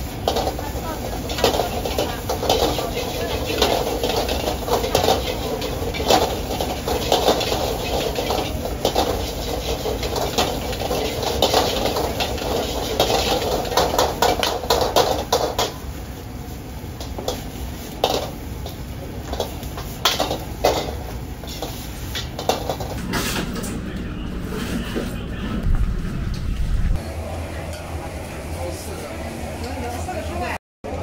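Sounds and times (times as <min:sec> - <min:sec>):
food frying: 0:00.0 - 0:23.1
gas flames rushing: 0:00.0 - 0:29.6
metal ladles clanging on woks: 0:00.1 - 0:15.8, 0:16.9 - 0:23.8.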